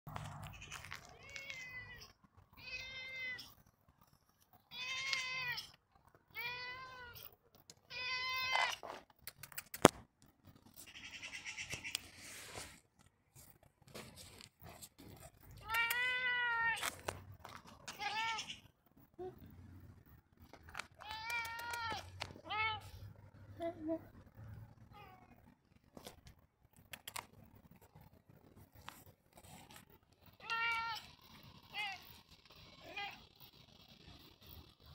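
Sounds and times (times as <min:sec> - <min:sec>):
cat meowing: 0:00.6 - 0:03.6, 0:04.7 - 0:07.3, 0:07.9 - 0:08.8, 0:15.6 - 0:16.9, 0:17.9 - 0:18.7, 0:21.0 - 0:23.0, 0:30.4 - 0:32.0.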